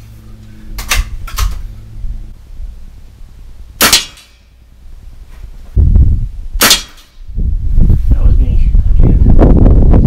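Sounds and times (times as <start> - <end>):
air rifle sharp crack: 3.8 - 4.5, 6.6 - 7.2.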